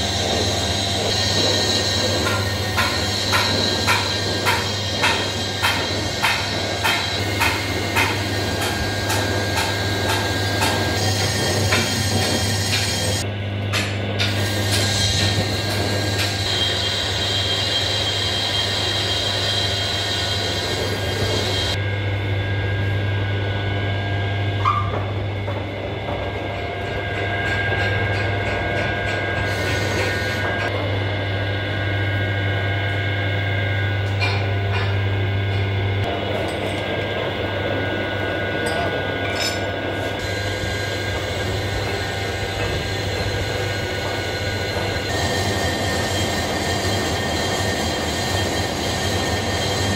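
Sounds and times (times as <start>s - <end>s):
lathe motor hum: 0.0s - 13.6s.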